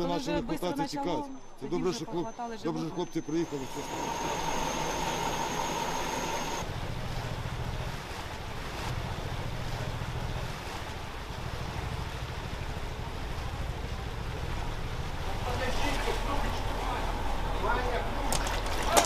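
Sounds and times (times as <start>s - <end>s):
mid-pitched hum: 2.8s - 18.9s
high whine: 3.0s - 6.7s
heavy vehicle engine running: 3.2s - 19.0s
water washing around: 3.4s - 19.0s.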